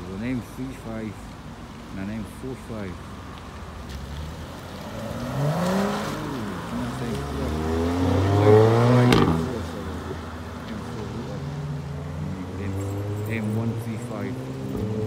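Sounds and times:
car engines revving: 0.0s - 15.0s
car accelerating past: 3.9s - 10.1s.

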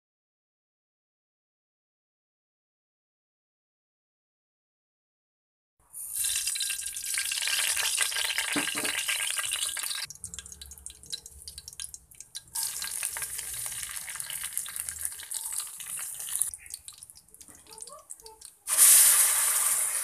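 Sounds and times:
spices sizzling in hot oil: 5.9s - 20.0s.

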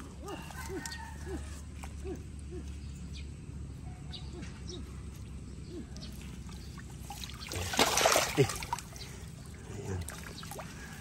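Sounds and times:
pond water splashing: 5.7s - 11.0s
faint water trickle: 6.0s - 11.0s.

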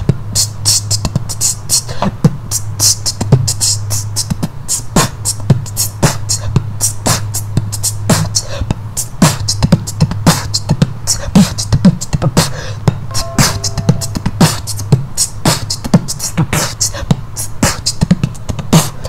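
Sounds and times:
person beatboxing: 0.0s - 13.0s, 16.5s - 19.0s
short pitched vocal note: 13.1s - 14.7s.

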